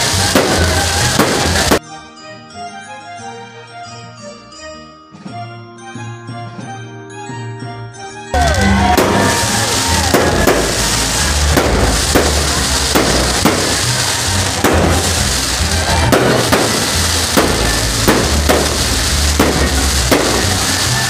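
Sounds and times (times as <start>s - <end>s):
firework shells bursting: 0.0s - 1.8s, 8.4s - 21.0s.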